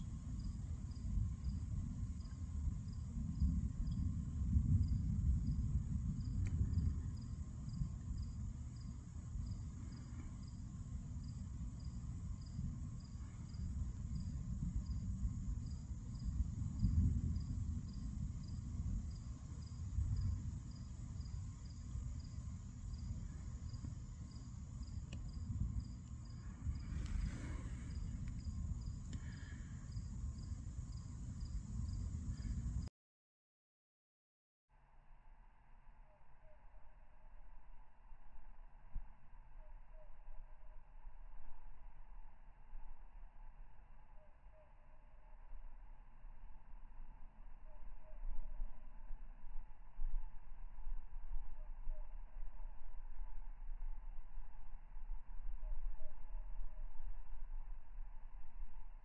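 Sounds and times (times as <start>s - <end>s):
crickets chirping: 0.0s - 32.9s
high insect drone: 0.0s - 32.9s
low uneven rumble: 0.0s - 32.9s.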